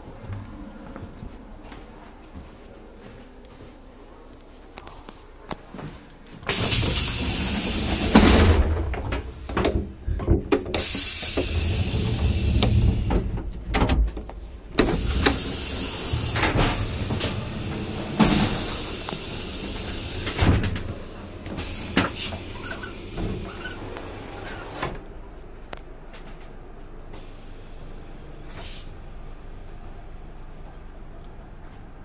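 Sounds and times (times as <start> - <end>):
train carriage interior noise: 0.0 - 32.0
train doors knocking and clunking: 6.4 - 25.0.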